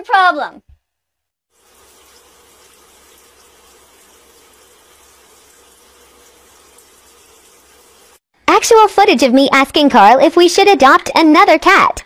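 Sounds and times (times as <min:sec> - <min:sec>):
faint hiss: 0:01.5 - 0:08.2.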